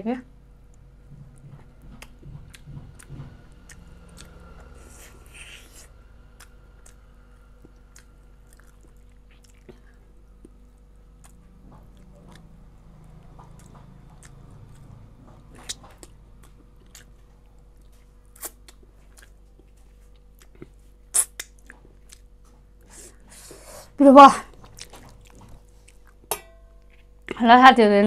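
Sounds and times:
chewing meat: 0.7s - 22.9s, 24.4s - 27.4s.

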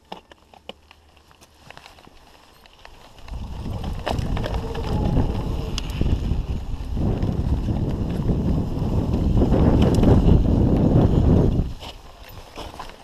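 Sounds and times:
bike clicks and rattles: 0.0s - 13.0s
bike tyres rolling on dirt: 0.0s - 13.0s
wind rushing over microphone: 3.2s - 12.4s.

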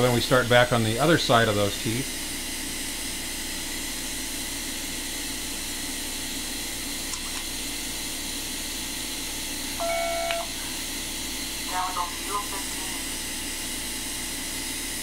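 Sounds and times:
low equipment hum: 6.0s - 15.0s.

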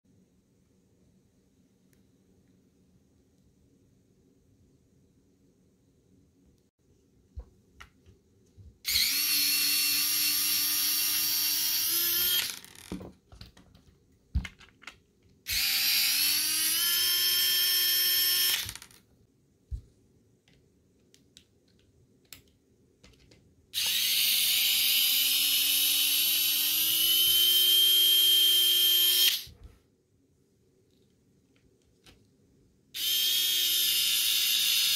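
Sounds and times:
electric screwdriver whirring: 8.9s - 12.9s, 15.5s - 19.0s, 23.8s - 29.5s, 33.0s - 34.9s
parts clicking and tapping: 20.4s - 24.0s.

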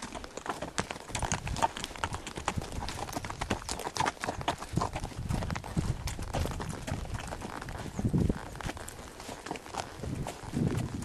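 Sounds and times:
horse hooves clip-clopping: 0.0s - 11.0s.

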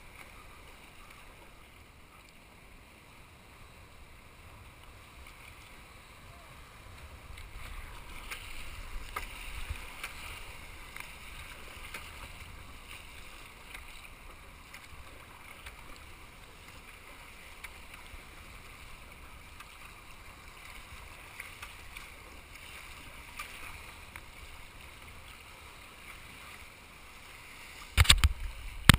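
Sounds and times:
water sloshing around a kayak: 0.0s - 28.9s
surf washing over rocks: 3.4s - 28.9s
sharp water splashes: 7.3s - 18.9s, 20.5s - 24.0s, 27.5s - 28.9s.

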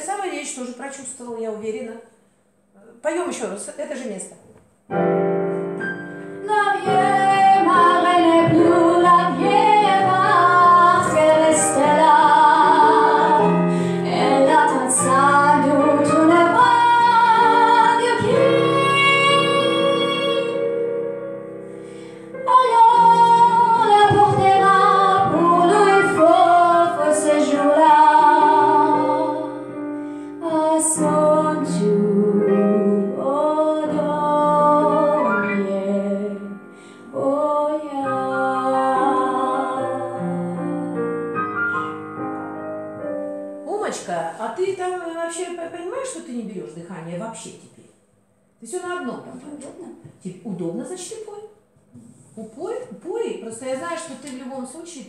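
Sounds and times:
digital piano accompaniment: 4.8s - 44.2s
woman singing with vibrato: 6.4s - 20.7s, 22.4s - 29.6s, 30.4s - 41.0s.

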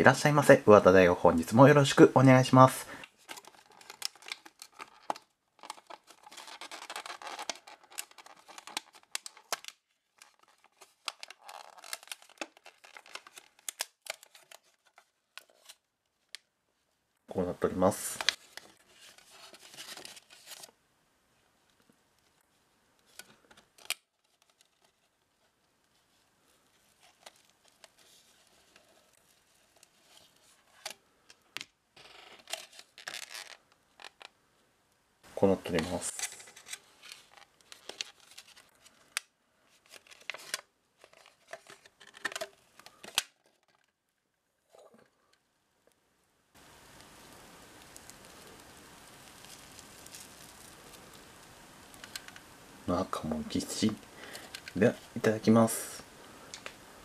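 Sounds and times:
plastic film peeling rustle: 1.8s - 16.5s, 17.4s - 20.8s, 21.7s - 31.5s, 32.2s - 34.4s, 35.4s - 44.0s, 46.6s - 55.5s
plastic packaging crinkling: 1.8s - 16.5s, 17.7s - 20.8s, 26.5s - 31.4s, 32.4s - 34.3s, 35.6s - 44.0s, 46.6s - 52.5s
tape seal peeling: 3.3s - 14.6s, 32.3s - 34.2s
plastic lid crinkling and clicking: 39.9s - 44.0s, 52.0s - 52.5s.

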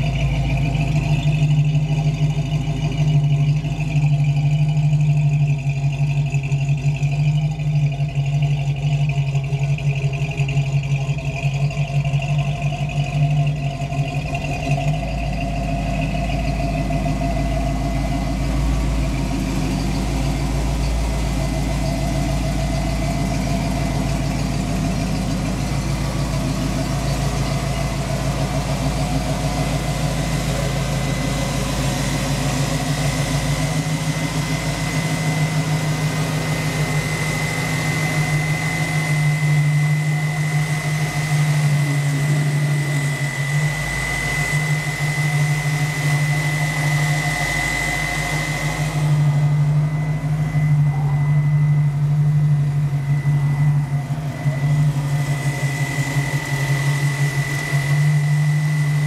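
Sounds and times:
car engine idling: 0.0s - 59.0s.

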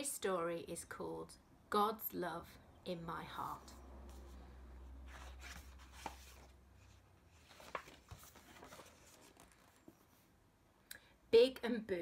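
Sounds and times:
picture book clicks and rustles: 5.1s - 10.2s.

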